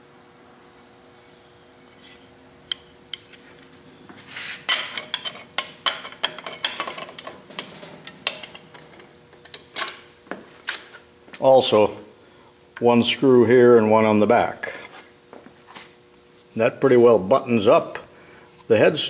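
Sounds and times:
metallic clinks and scrapes: 1.9 - 10.9.

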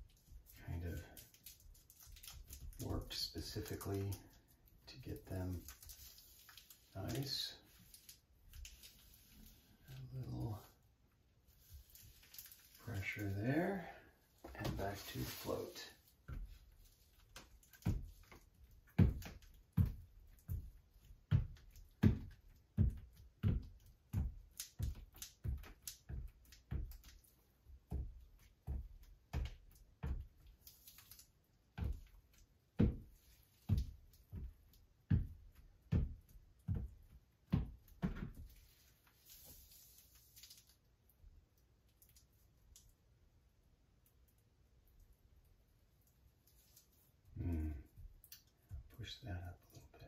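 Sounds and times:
grout float thumping on tiles: 13.8 - 40.8.

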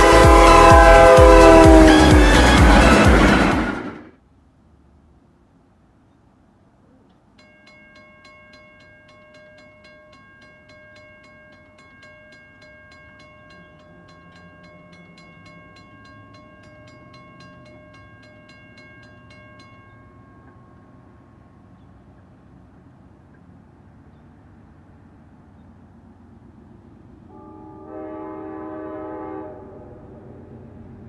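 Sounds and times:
railroad crossing bell ringing: 0.0 - 3.5, 7.2 - 22.1.

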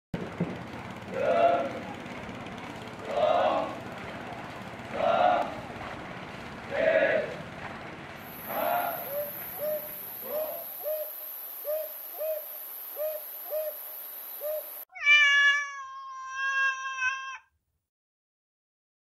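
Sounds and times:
short hooting calls: 8.3 - 17.4
cat meowing: 14.9 - 17.5.

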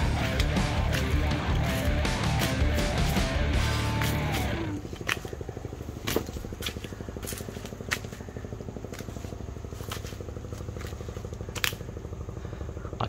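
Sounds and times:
background music: 0.0 - 4.8
engine running with fast pulse: 0.0 - 13.0.

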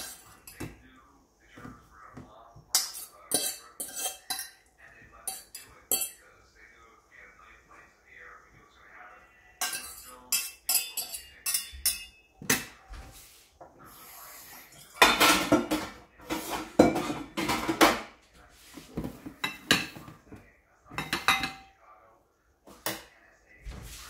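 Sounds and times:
pot and utensils clanking: 0.0 - 0.8, 2.6 - 6.3, 9.6 - 12.8, 14.6 - 18.2, 18.8 - 20.2, 20.9 - 21.8
fork scraping a metal saucepan: 2.7 - 4.6
dishes knocking as set down: 15.0 - 18.1.

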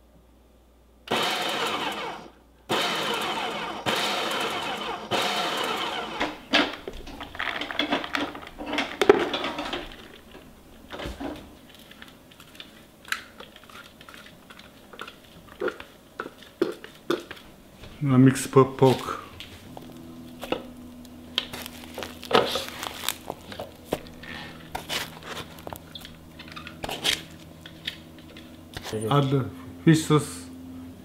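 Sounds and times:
food processor chopping: 1.1 - 6.4.

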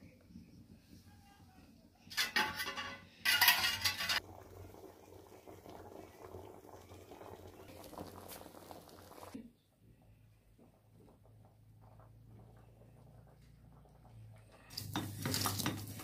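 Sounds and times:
food cooking in pans: 2.1 - 9.4, 10.8 - 16.0.

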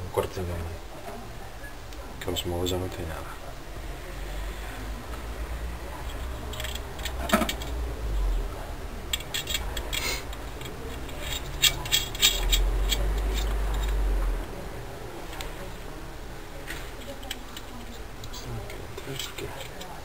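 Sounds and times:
small metallic clicks and clinks: 6.0 - 7.8, 9.1 - 14.0.

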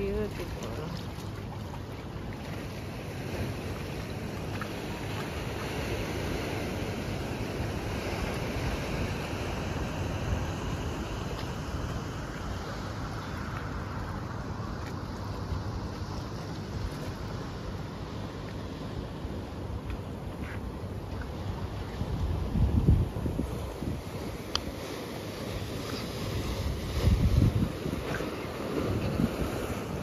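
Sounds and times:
sea water washing against rocks: 0.0 - 30.0
wind on microphone: 19.2 - 30.0.

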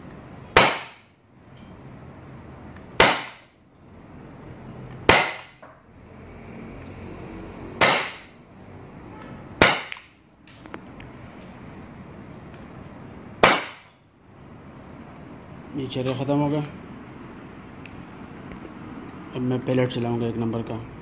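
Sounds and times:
air pistol shots: 0.5 - 1.1, 3.0 - 3.5, 5.1 - 5.6, 7.8 - 8.3, 9.6 - 10.1, 13.4 - 14.0.

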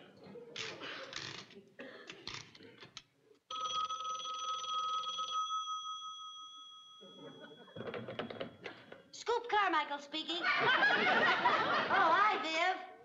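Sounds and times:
telephone bell ringing: 3.5 - 8.7.

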